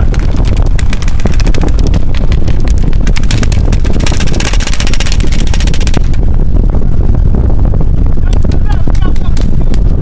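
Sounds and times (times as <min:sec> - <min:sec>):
paintball markers firing: 0:00.0 - 0:06.1
wind rumble on microphone: 0:00.0 - 0:10.0.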